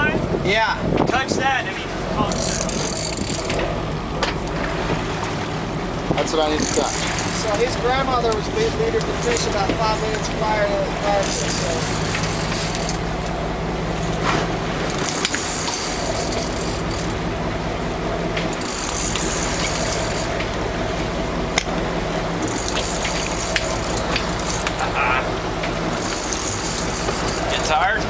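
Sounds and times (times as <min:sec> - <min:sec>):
boat engine running: 0:00.0 - 0:28.0
water splashing past hull: 0:00.0 - 0:28.0.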